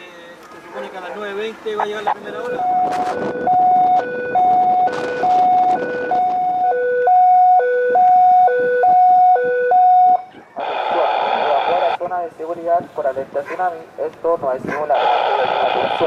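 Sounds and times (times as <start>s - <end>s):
two-tone siren: 2.0s - 12.0s.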